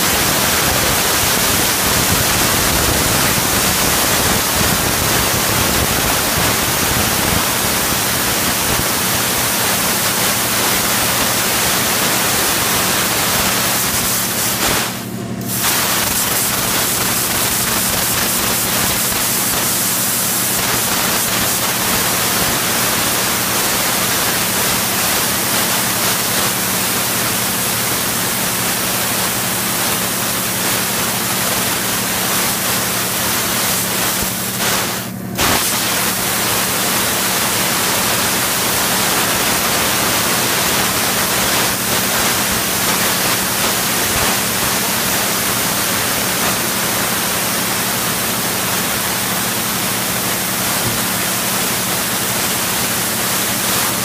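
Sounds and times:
low machine hum: 0:00.0 - 0:40.4
laser cutter hissing: 0:00.0 - 0:54.0.

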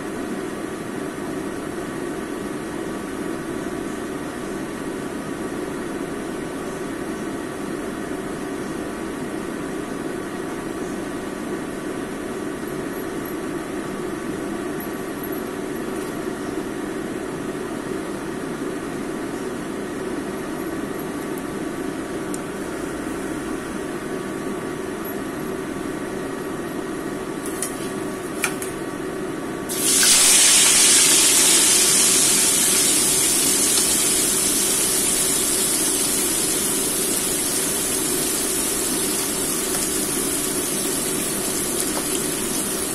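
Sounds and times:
fish frying sizzle: 0:29.7 - 0:42.9.

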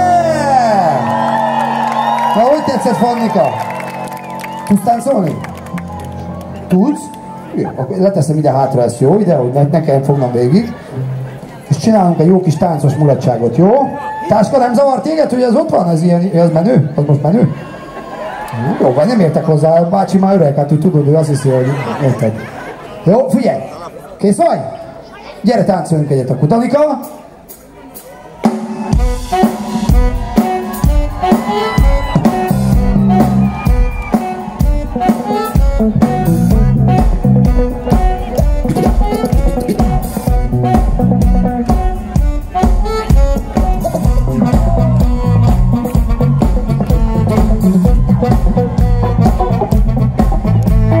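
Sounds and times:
live band playing dance music: 0:00.0 - 0:10.3, 0:26.6 - 0:51.0
drum kit beat: 0:27.0 - 0:51.0.

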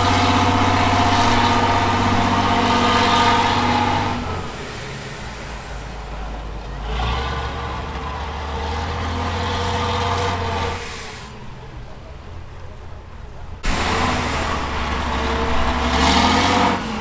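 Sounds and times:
truck diesel engine under load: 0:00.0 - 0:17.0.

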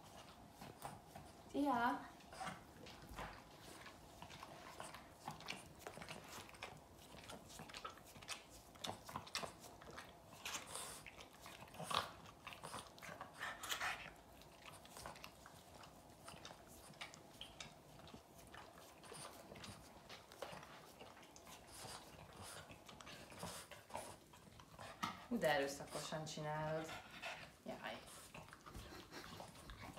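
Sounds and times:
dog licking smacks: 0:14.0 - 0:25.3.

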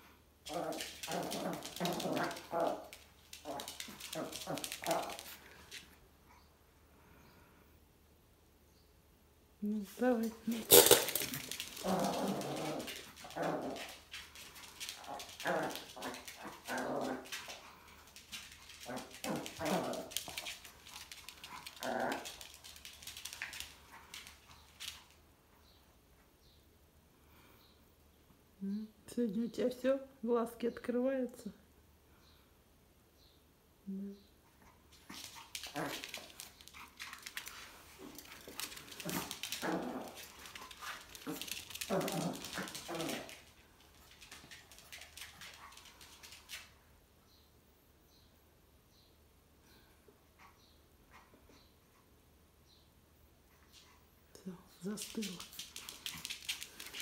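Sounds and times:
ball and claws clicking on floor: 0:00.4 - 0:06.0, 0:10.0 - 0:25.2, 0:34.9 - 0:46.8, 0:54.8 - 0:57.0
small dog yipping and growling: 0:35.1 - 0:36.3
claws and ball tapping on floor: 0:35.2 - 0:46.6.

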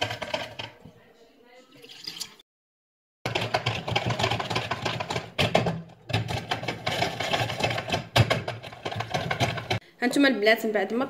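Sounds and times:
food mill blade scraping and rattling: 0:00.0 - 0:00.8, 0:03.3 - 0:09.8.

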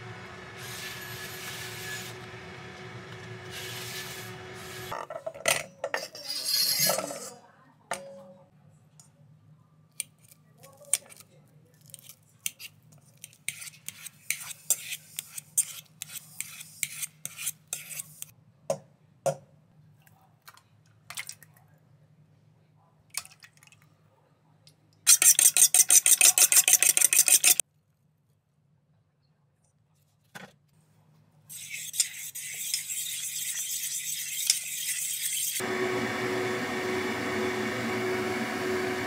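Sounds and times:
eggs beaten in metal bowl: 0:25.1 - 0:27.6
fork mashing in metal bowl: 0:25.1 - 0:27.6.

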